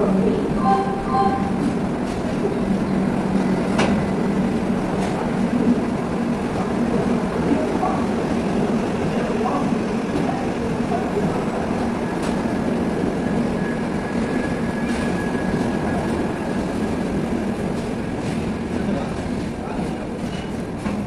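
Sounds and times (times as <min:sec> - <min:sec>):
train wheels rumbling on track: 0:00.0 - 0:21.0
faint high tone: 0:00.6 - 0:01.6.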